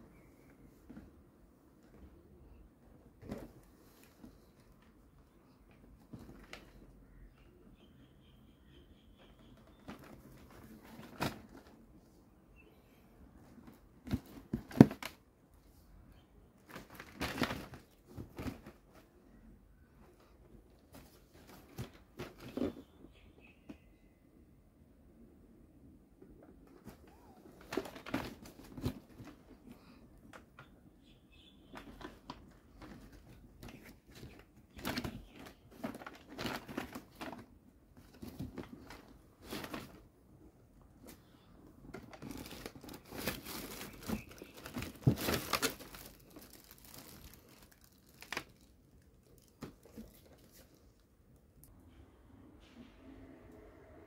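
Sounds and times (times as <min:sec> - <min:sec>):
plastic packaging crinkling: 0:42.0 - 0:50.8.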